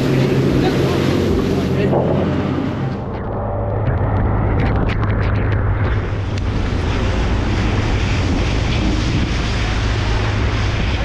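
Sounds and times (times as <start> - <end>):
rushing water: 0.0 - 3.2, 3.8 - 11.0
boat engine droning: 0.0 - 11.0
water slapping: 0.0 - 11.0
wind buffeting microphone: 0.0 - 11.0.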